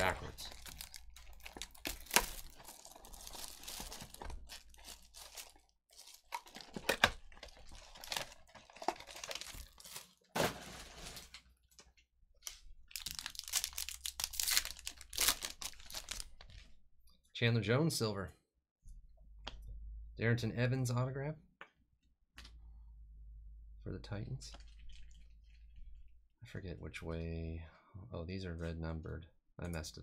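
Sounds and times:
plastic wrap crinkling: 0.0 - 11.4, 12.9 - 16.6.

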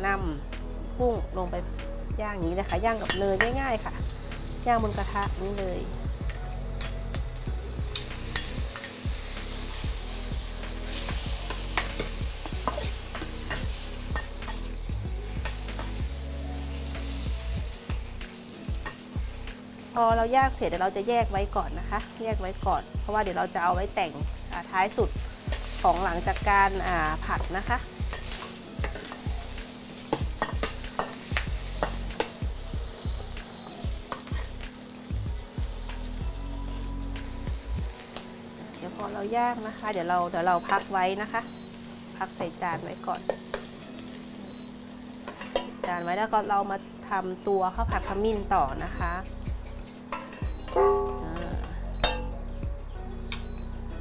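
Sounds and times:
shrimp sizzling in a wok: 0.0 - 54.0
spatula scraping a pan: 7.9 - 16.1, 27.9 - 32.4, 33.0 - 34.7, 43.2 - 45.9, 50.0 - 52.3.

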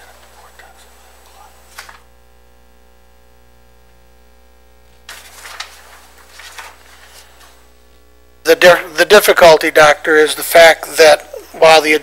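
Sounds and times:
steady low hum: 0.0 - 12.0
paper sheets rustling: 5.1 - 7.6.

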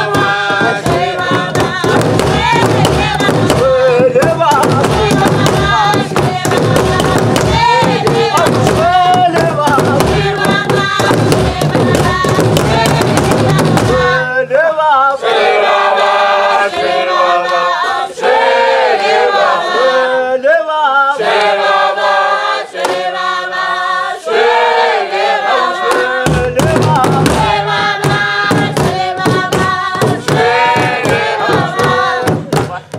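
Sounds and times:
fast drum beat: 0.0 - 14.2, 26.2 - 32.9
group singing together: 0.0 - 32.9.

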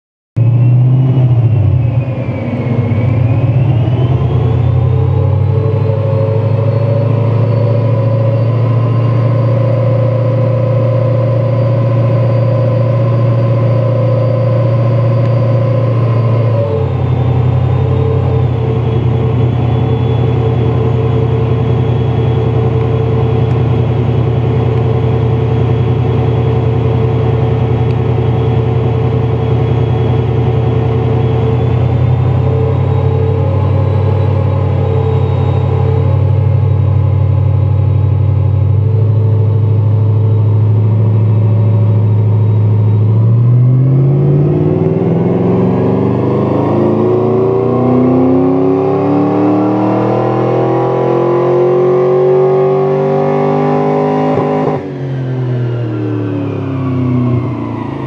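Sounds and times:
car engine running loud on dyno: 0.4 - 58.0.

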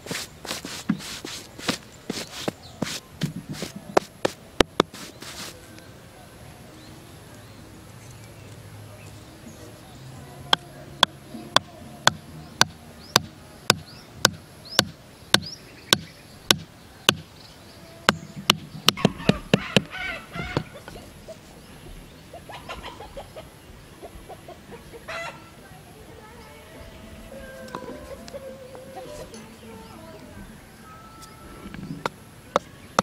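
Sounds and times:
hatchet knocking wooden stake: 0.1 - 5.5, 11.6 - 17.3, 18.1 - 19.9.

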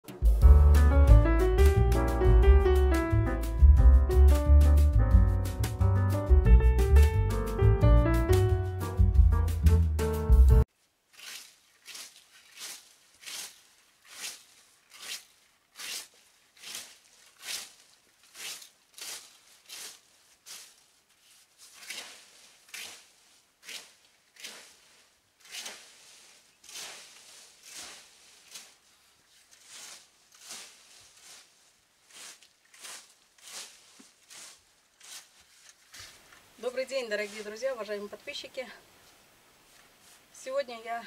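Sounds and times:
rake scratching through leaves: 11.1 - 38.4.

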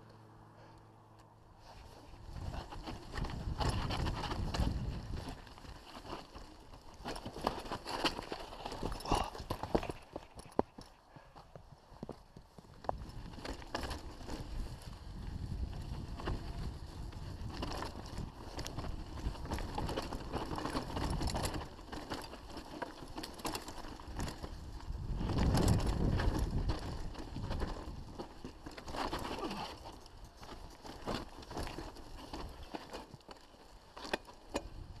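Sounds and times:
bike rattling over stones: 1.6 - 35.0
bike tyres rumbling on dirt: 1.6 - 35.0
wind on microphone: 2.2 - 5.5, 14.2 - 20.0, 24.2 - 28.2.

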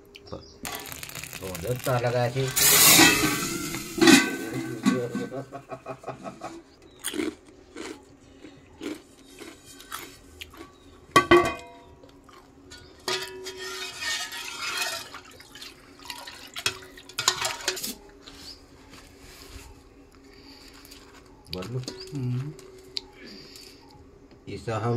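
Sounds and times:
metal pot and ladle clattering: 1.4 - 5.5, 11.2 - 11.8, 12.7 - 17.9
ringing metal clang: 2.5 - 5.4, 11.2 - 11.9.

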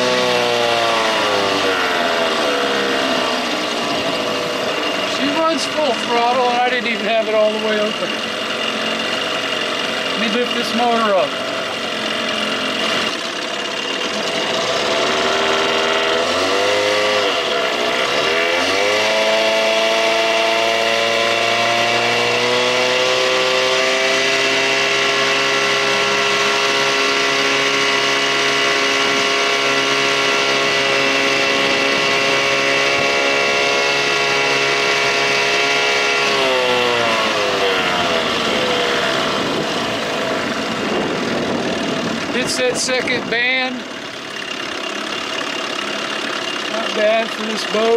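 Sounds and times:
outboard motor running: 0.0 - 47.9.

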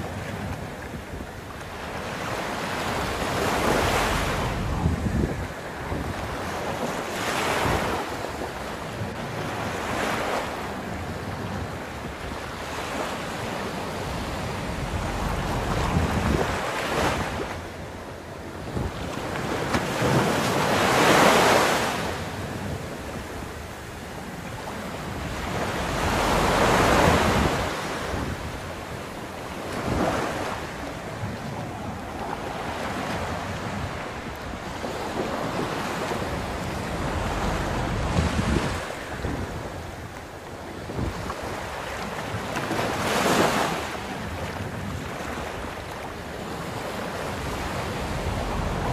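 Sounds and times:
wind rumble on microphone: 0.0 - 48.9
surf breaking on beach: 1.7 - 8.4, 12.6 - 17.8, 24.5 - 40.2, 40.9 - 48.9.

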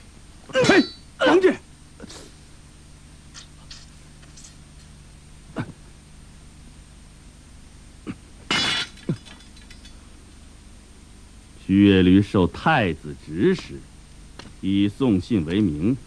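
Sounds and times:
steady low hum: 0.0 - 16.0
metal knife clattering on ground: 0.6 - 1.1, 3.3 - 5.0, 8.5 - 10.0.

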